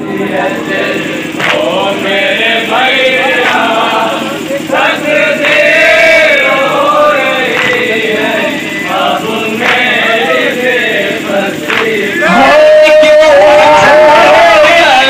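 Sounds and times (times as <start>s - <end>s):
men singing in unison: 0.0s - 15.0s
man chanting through microphone: 7.2s - 15.0s.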